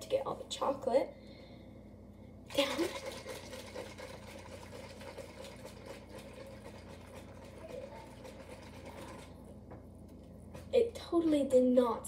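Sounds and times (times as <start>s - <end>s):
liquid sloshing in plastic cup: 2.5s - 9.4s.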